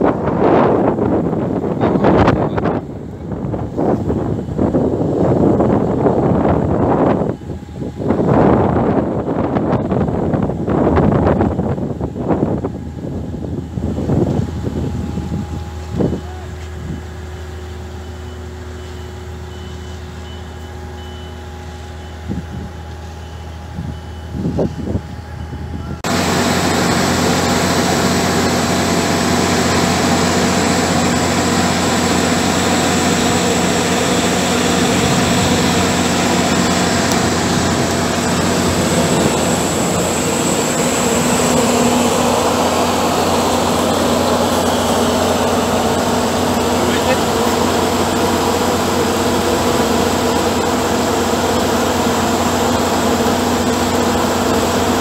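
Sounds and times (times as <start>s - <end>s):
diesel engine running: 0.0s - 55.0s
reversing alarm beeping: 12.6s - 26.0s
drilling rig engine churning soil: 26.0s - 55.0s.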